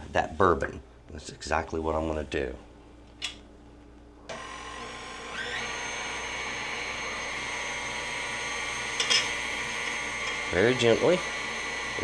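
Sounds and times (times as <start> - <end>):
stand mixer motor whine: 4.3 - 12.0.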